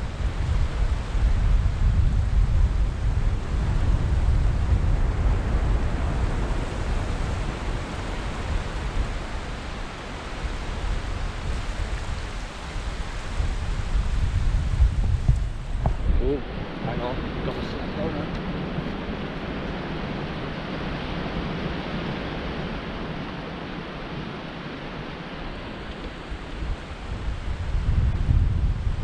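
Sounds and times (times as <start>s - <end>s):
surf hiss: 0.0s - 29.0s
wind buffeting microphone: 0.0s - 29.0s.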